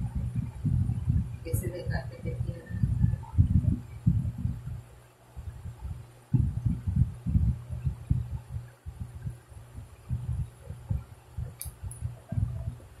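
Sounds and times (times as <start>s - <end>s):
steady low hum: 0.0s - 13.0s
sharp click: 11.6s - 12.1s.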